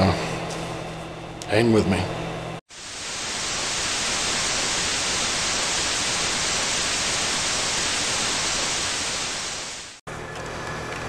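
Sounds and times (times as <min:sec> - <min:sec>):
white noise static hiss: 0:02.7 - 0:10.0.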